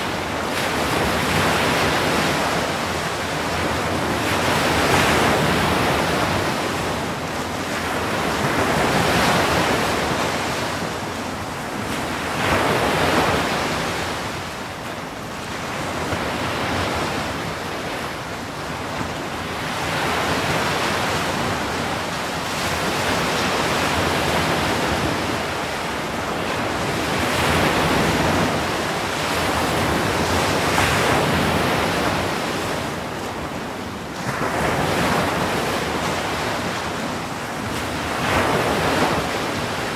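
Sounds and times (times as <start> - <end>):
surf breaking on shore: 15.5 - 39.9.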